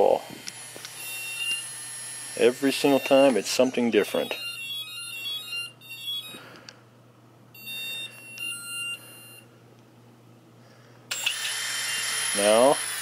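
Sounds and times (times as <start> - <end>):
electronic beeps: 1.0 - 1.7, 2.6 - 6.4, 7.6 - 9.4.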